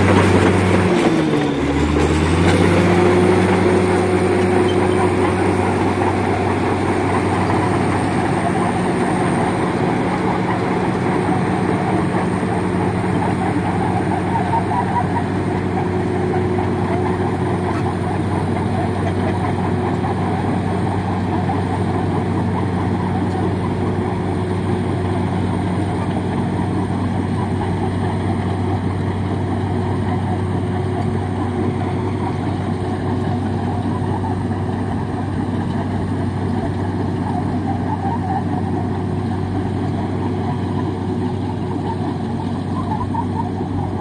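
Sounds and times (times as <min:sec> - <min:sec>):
diesel engine running: 0:00.0 - 0:44.0.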